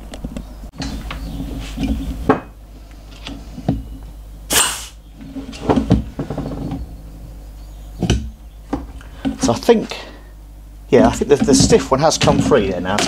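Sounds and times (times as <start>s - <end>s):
compressed air hiss: 4.5s - 5.0s.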